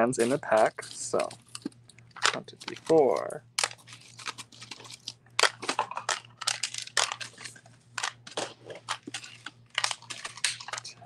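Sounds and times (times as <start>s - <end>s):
beads rustling: 0.0s - 7.6s.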